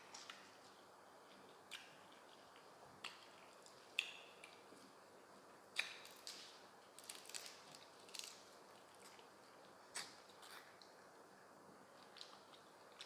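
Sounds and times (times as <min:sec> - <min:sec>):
herbs crushed in hands: 0:05.8 - 0:09.3.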